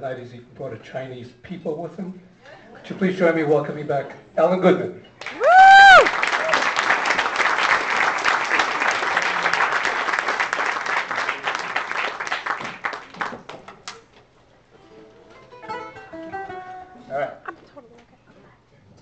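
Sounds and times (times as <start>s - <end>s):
audience applause: 5.2s - 14.0s
plucked ukulele notes: 14.8s - 17.2s.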